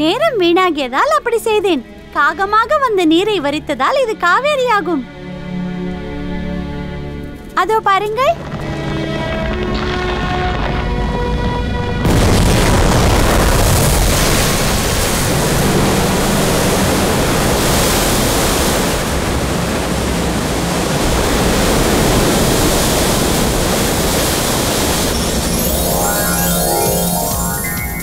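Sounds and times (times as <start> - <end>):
rushing water: 13.2 - 28.0
music with chiming tones: 25.1 - 28.0.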